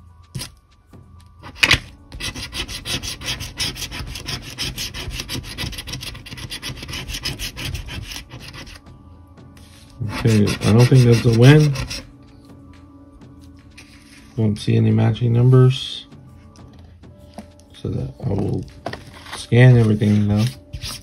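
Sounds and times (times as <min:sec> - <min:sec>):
coin scratching a ticket: 0:02.2 - 0:08.8, 0:10.0 - 0:12.0.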